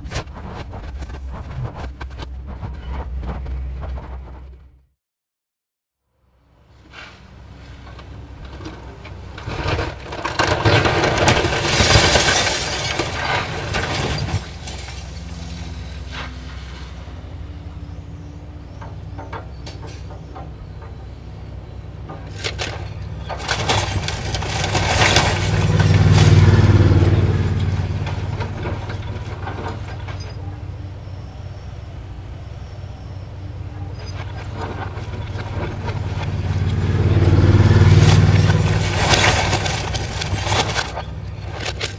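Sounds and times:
excavator diesel engine running: 7.2s - 41.9s
wood splintering and debris falling: 9.3s - 15.4s, 22.3s - 30.3s, 33.9s - 41.9s.

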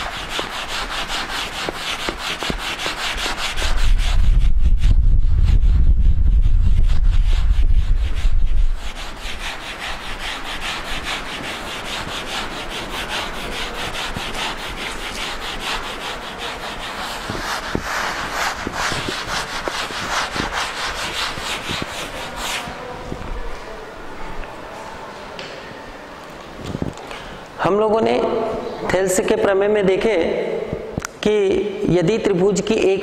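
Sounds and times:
eraser rubbing chalk blackboard: 0.0s - 23.3s
low rumble: 4.2s - 8.8s.

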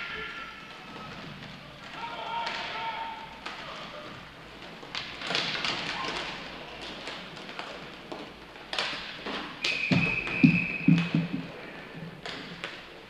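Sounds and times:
sticks and puck clacking: 0.9s - 13.0s.

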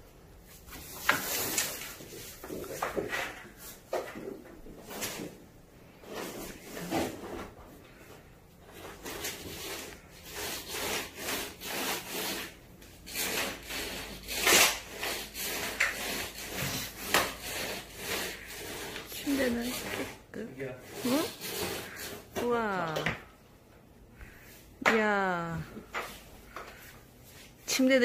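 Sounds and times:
fabric rubbing against phone: 16.0s - 22.7s.

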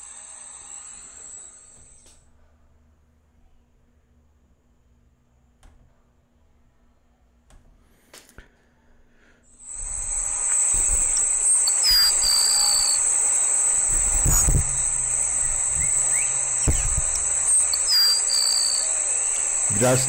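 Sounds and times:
high insect trill: 9.6s - 20.0s
sparrow singing: 10.1s - 20.0s.

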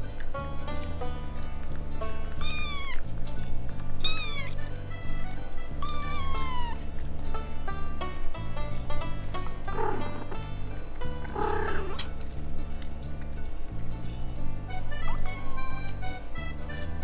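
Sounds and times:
cheerful background music: 0.0s - 17.0s
kitten mewing: 2.4s - 3.0s, 4.0s - 4.6s, 5.7s - 6.9s.

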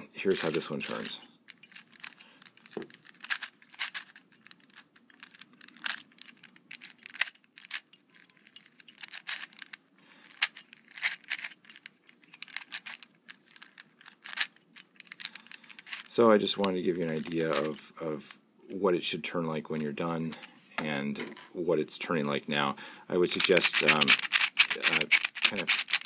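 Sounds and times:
puzzle cube clicks and clacks: 0.3s - 17.8s, 23.3s - 26.0s.

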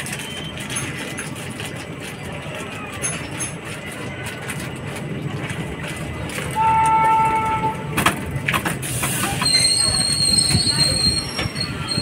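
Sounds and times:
passenger train rumbling: 0.0s - 12.0s
train wheels clacking: 0.0s - 12.0s
train horn: 6.6s - 8.0s.

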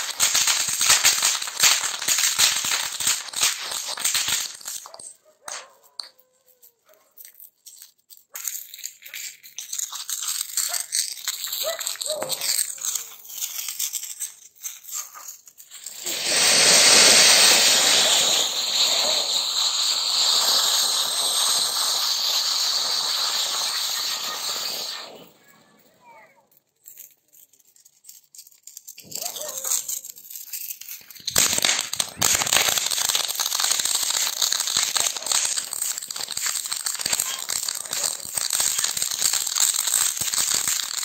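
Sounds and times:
firework fountain hissing: 0.0s - 5.1s, 9.2s - 13.0s, 15.6s - 26.1s, 30.8s - 41.0s
crackling and sputtering: 0.0s - 5.6s, 8.4s - 26.0s, 28.6s - 41.0s.

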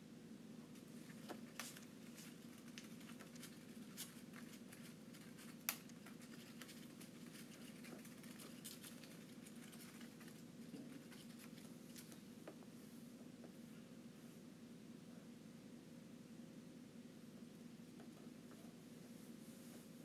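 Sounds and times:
paper crinkling: 1.0s - 12.2s.

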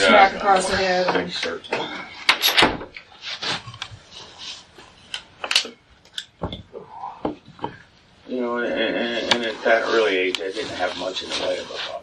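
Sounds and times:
faint rustling: 9.1s - 12.0s.

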